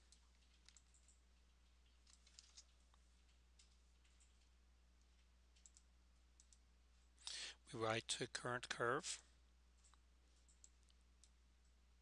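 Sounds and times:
faint low hum: 0.0 - 12.0
computer mouse clicks: 0.1 - 6.7, 9.8 - 11.4.

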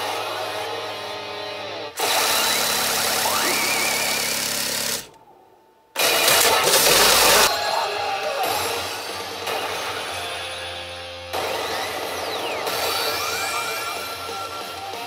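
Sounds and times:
loud crash-like jackpot sound: 6.0 - 7.5
machine music: 6.0 - 15.0.

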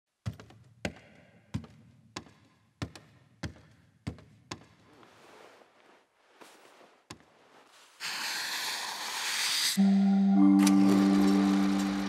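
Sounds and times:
footsteps walking: 1.5 - 8.0
soft rustle: 4.8 - 8.0.

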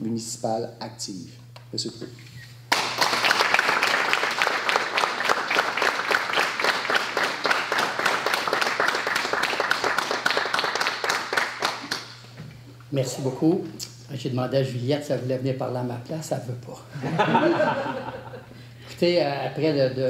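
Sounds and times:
audience applauding: 2.7 - 12.1.

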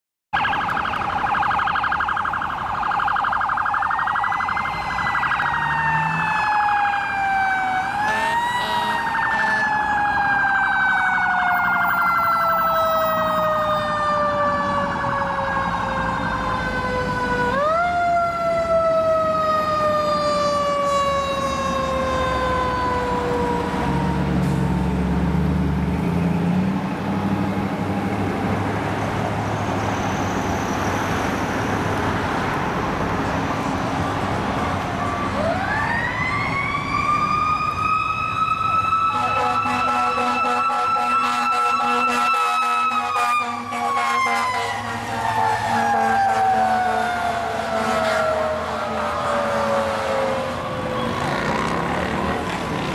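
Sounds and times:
fast warbling siren: 0.3 - 25.0, 34.1 - 51.6
rising and sliding siren: 0.3 - 52.9.

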